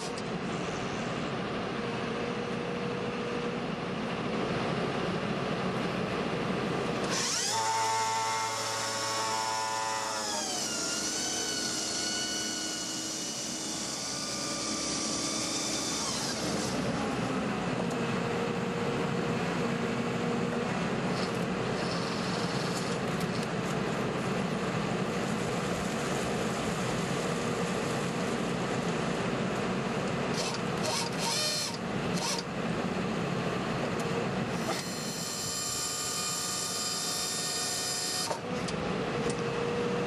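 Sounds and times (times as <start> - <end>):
engine running: 0.0 - 40.0
drill head whining: 7.0 - 17.2, 21.1 - 23.4, 30.3 - 32.5, 34.6 - 38.8.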